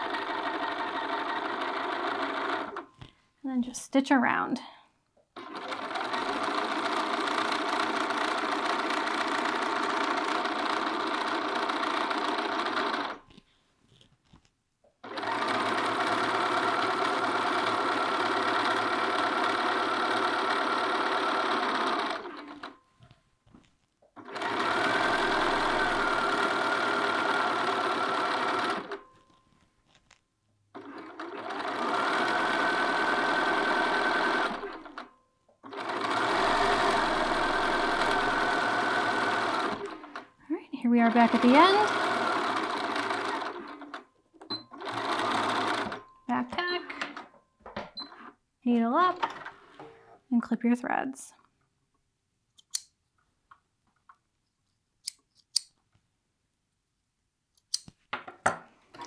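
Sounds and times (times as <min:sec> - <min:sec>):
sewing machine stitching: 0:00.0 - 0:02.9, 0:05.4 - 0:14.1, 0:15.0 - 0:22.8, 0:24.2 - 0:30.1, 0:30.8 - 0:40.3, 0:40.9 - 0:46.1.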